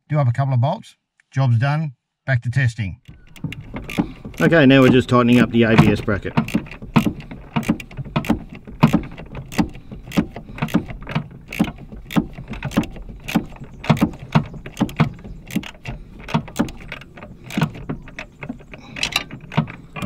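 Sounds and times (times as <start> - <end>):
ratchet spanner clicking: 3.1 - 20.0.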